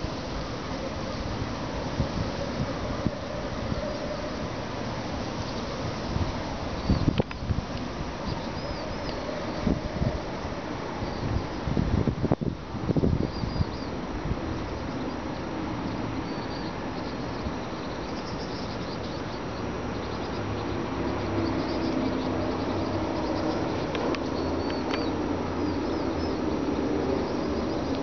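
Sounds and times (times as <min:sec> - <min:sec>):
small birds chirping: 0:05.4 - 0:10.2, 0:13.0 - 0:28.0.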